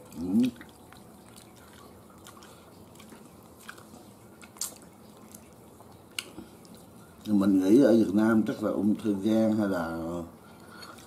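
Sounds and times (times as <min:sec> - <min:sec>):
soft chewing: 0:00.0 - 0:08.7, 0:10.4 - 0:11.0
small clicks and smacks: 0:00.5 - 0:06.9.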